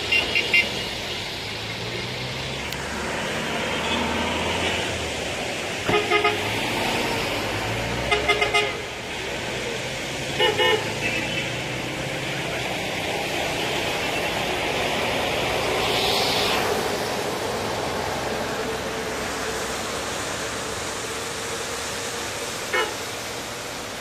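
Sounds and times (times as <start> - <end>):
car horns tooting: 0.0 - 0.8, 5.8 - 6.5, 8.1 - 8.8, 10.4 - 11.5, 22.7 - 23.0
steady hiss of traffic: 0.0 - 24.0.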